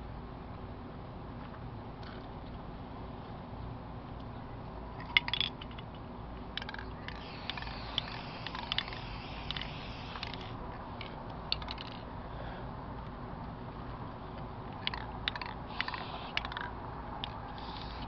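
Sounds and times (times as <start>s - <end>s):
spray paint can hissing: 6.6s - 10.6s, 15.3s - 16.6s, 17.3s - 18.0s.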